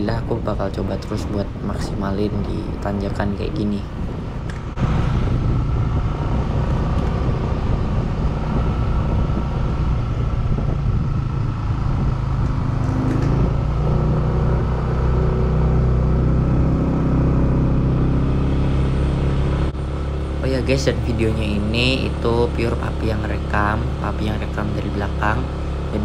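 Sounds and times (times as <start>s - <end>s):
vehicle engine humming: 0.0s - 26.0s.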